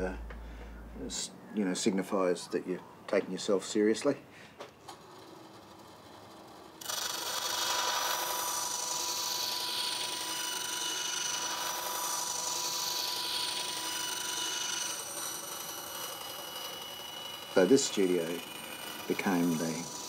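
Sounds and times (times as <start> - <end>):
bandsaw cutting wood: 6.7 - 20.0.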